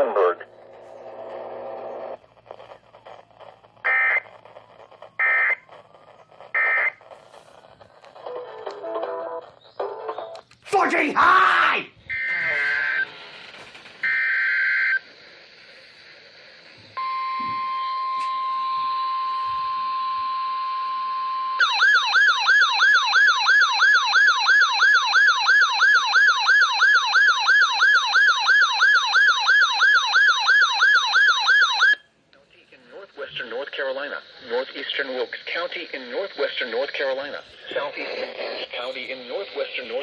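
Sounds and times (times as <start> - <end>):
buzzing data bursts: 0.4 - 10.2
steady alarm tone: 0.5 - 7.8, 12.1 - 13.1, 17.0 - 32.0
warbling alert siren: 2.6 - 7.6, 12.1 - 13.1, 17.0 - 32.0.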